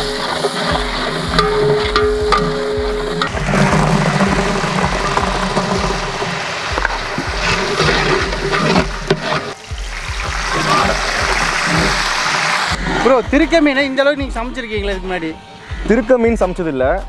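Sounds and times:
shallots sizzling in oil: 0.0 - 12.8.

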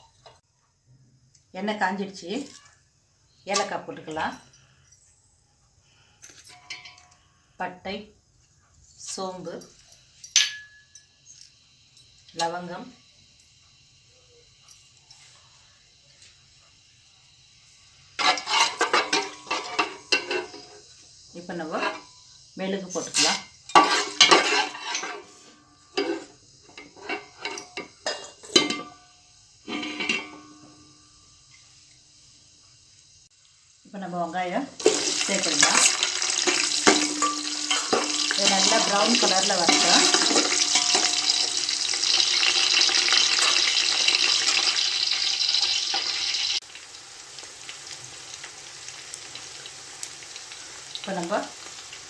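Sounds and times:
spices sizzling in hot oil: 5.8 - 52.0
ladle scraping metal pot: 18.2 - 20.6, 23.1 - 28.9, 29.7 - 30.5, 34.8 - 44.8.

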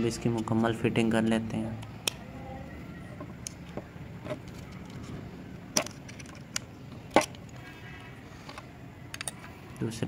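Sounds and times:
metal clicks and taps: 3.2 - 5.0, 8.5 - 9.9.

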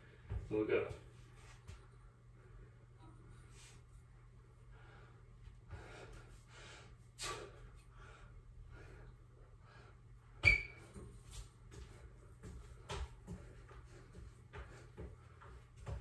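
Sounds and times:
man breathing hard: 4.6 - 10.3.

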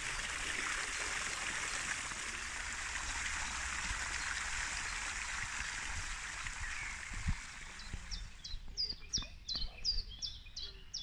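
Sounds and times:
fountain water splashing: 0.0 - 8.4
small bird chirping: 7.8 - 11.0.

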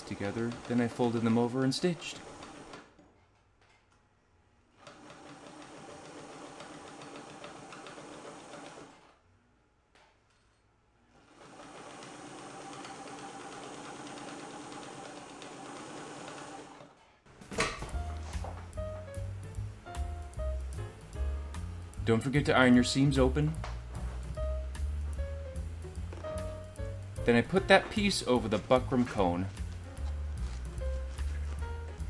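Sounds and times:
sewing machine stitching: 0.0 - 3.0, 4.8 - 9.2, 11.1 - 17.1.

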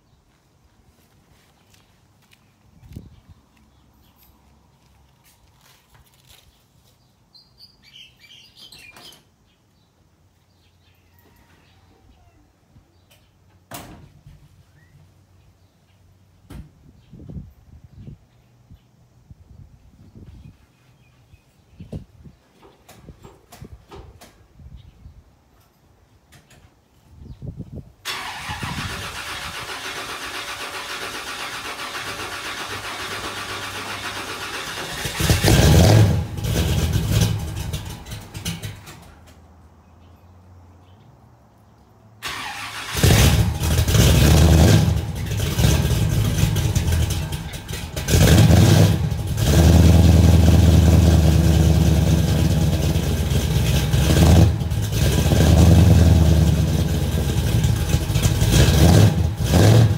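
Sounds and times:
car engine cranking: 28.1 - 39.4, 42.2 - 59.9
car engine revving: 31.4 - 38.7, 42.3 - 59.9.

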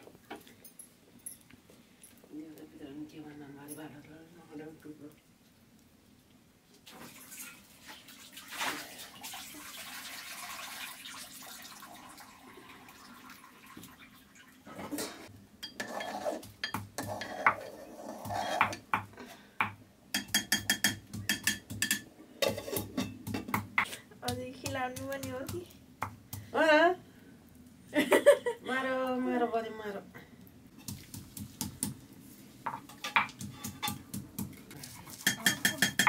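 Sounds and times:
metal plates and lids clattering: 14.7 - 18.9, 20.2 - 23.6, 35.2 - 36.0.

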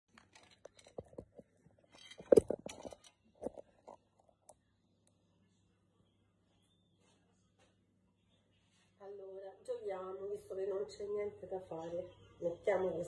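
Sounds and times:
small clicks and knocks: 0.1 - 4.6
faint low hum: 0.1 - 13.0.

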